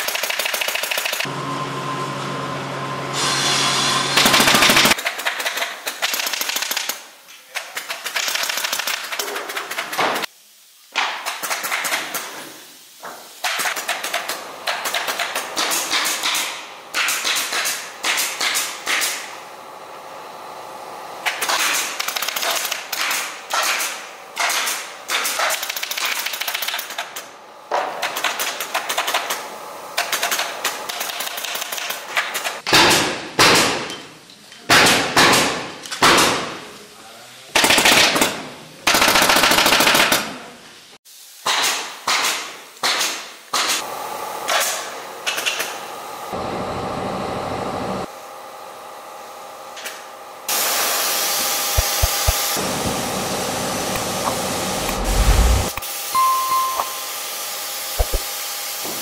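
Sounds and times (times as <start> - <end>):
pneumatic staple gun firing: 0.0 - 1.3, 4.1 - 7.1, 7.7 - 10.3, 11.0 - 12.5, 13.4 - 19.4, 21.2 - 29.4, 30.0 - 34.0, 34.6 - 36.6, 37.6 - 40.4, 41.4 - 45.9, 49.8 - 52.7, 57.9 - 59.0
steady rushing noise: 54.2 - 55.8.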